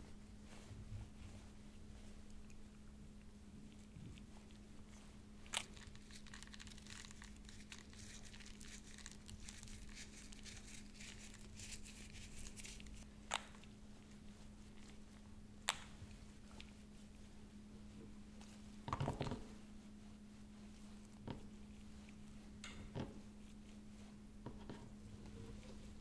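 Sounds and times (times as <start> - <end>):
faint steady hum: 0.0 - 26.0
seeds pattering on bun: 2.2 - 16.9.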